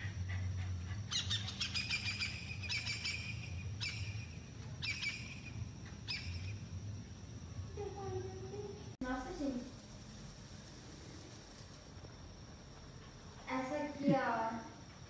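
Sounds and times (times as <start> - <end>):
bird chirping: 0.0 - 6.7.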